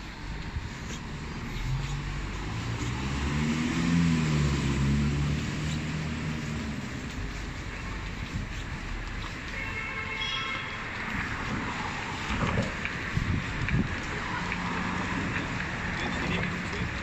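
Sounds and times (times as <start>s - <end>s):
city traffic noise: 0.0s - 17.0s
vehicle engine passing close: 0.9s - 8.4s.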